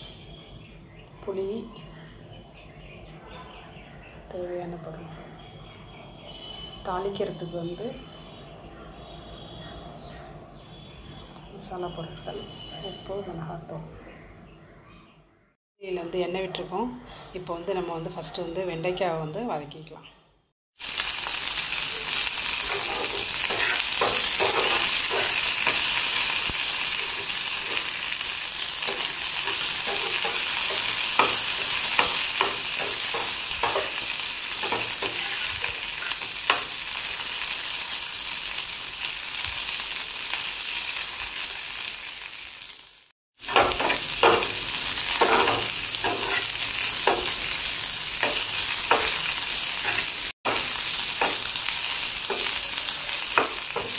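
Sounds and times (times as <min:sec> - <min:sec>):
vegetables sizzling in hot oil: 0:20.8 - 0:53.9
spatula scraping a pan: 0:22.4 - 0:28.2, 0:28.8 - 0:36.6, 0:43.4 - 0:47.6, 0:48.2 - 0:51.6.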